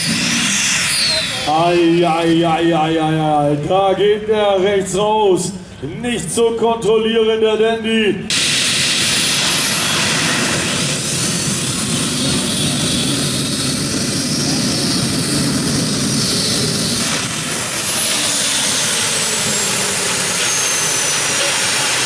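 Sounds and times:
high whine: 0:00.0 - 0:03.3, 0:08.2 - 0:22.0
pulling tractor engines roaring: 0:08.9 - 0:22.0.

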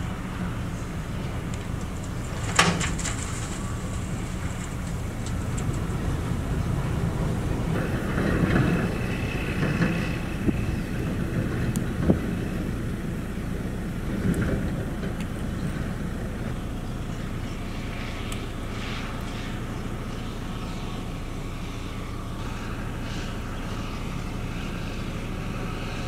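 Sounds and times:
diesel truck engine running: 0:00.0 - 0:26.0
rattling clatter: 0:01.6 - 0:06.1.

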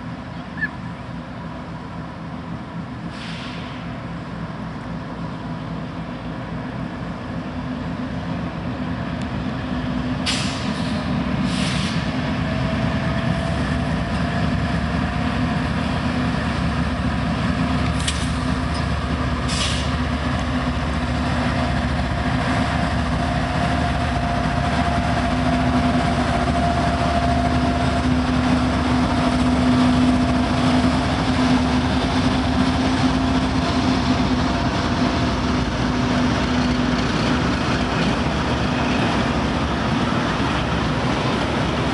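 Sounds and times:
diesel locomotives running: 0:00.0 - 0:41.9
train cars rolling on rails: 0:00.0 - 0:41.9
wheels clicking on track: 0:13.0 - 0:41.9.

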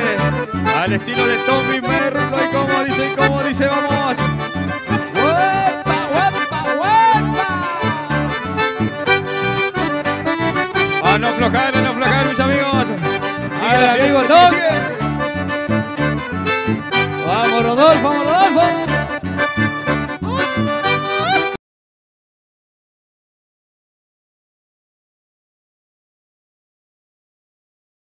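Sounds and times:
repeating low bass: 0:00.0 - 0:20.2
accordion music: 0:00.0 - 0:21.6.

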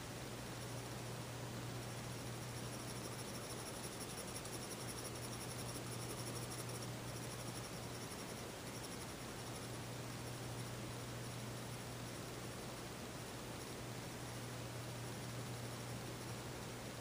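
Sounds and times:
steady low hum: 0:00.0 - 0:17.0
high rapidly pulsing chirr: 0:01.9 - 0:10.4.

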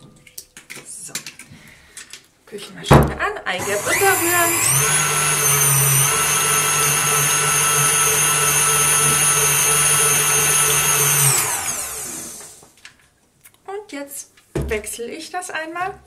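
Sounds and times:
stand mixer motor whine: 0:03.6 - 0:12.6.

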